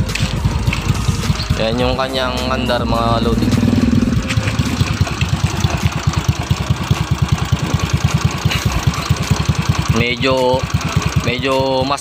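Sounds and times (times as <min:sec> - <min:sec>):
motorcycle engine idling: 0:00.0 - 0:12.0.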